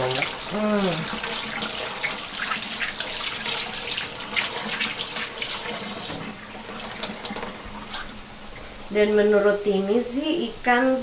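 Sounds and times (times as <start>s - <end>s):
tap water splashing into sink: 0.0s - 8.2s.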